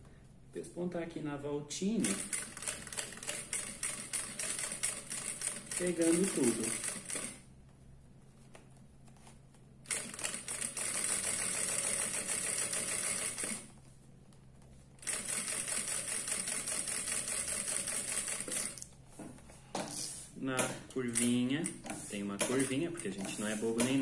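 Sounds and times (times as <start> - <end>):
industrial sewing machine stitching: 2.0 - 7.4, 9.9 - 13.7, 15.0 - 18.8.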